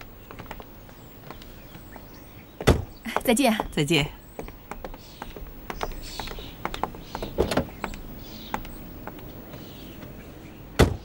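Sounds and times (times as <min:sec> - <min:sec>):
car door and body knocks: 0:02.6 - 0:03.0, 0:05.8 - 0:08.7, 0:10.8 - 0:11.0.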